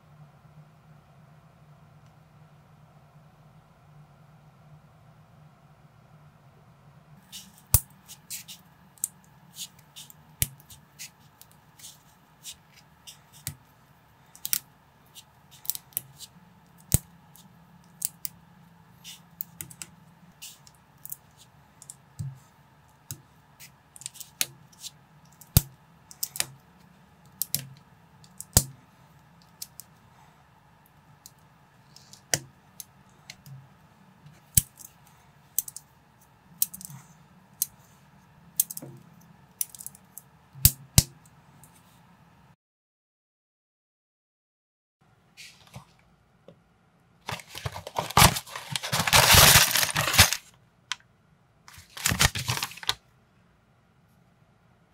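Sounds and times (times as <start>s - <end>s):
faint low hum: 0.0s - 42.6s.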